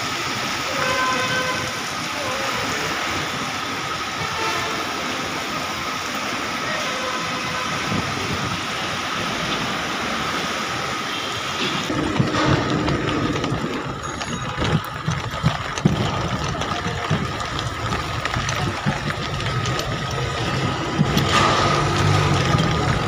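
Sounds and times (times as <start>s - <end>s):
rain falling: 0.0s - 23.0s
vehicle engines in traffic: 0.0s - 23.0s
scattered taps and knocks: 11.6s - 23.0s.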